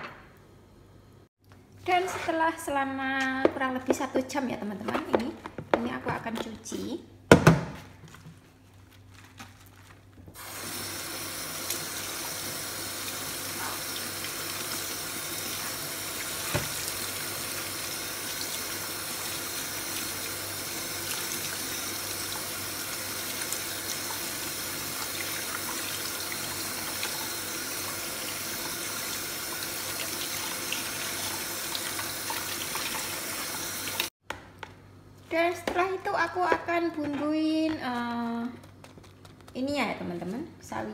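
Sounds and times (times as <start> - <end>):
kitchen tap running: 10.4 - 34.1.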